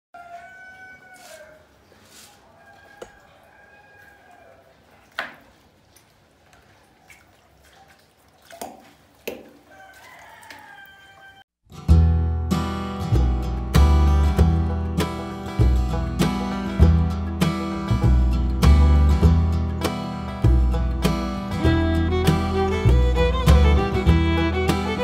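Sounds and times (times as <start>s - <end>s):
rooster crowing: 0.2s - 1.7s, 2.4s - 4.8s, 9.7s - 11.5s
acoustic guitar music: 11.7s - 25.0s.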